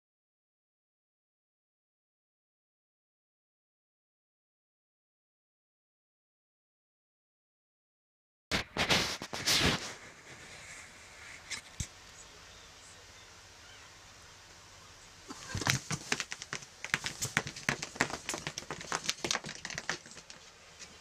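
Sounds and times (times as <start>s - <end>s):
cat claws scrabbling on fabric: 15.3s - 20.4s.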